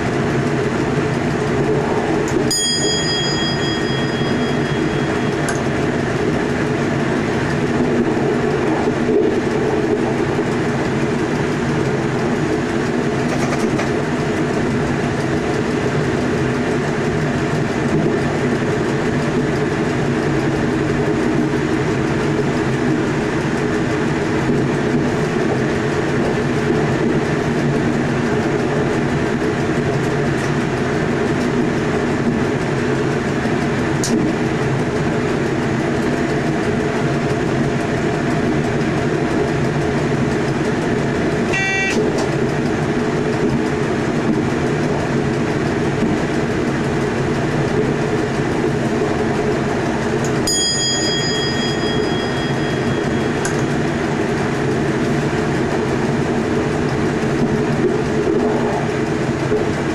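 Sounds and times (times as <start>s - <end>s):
traction equipment hum: 0.0s - 59.9s
wheels rolling on track: 0.0s - 59.9s
short cab chime: 2.5s - 5.6s, 41.5s - 42.0s, 50.5s - 53.8s.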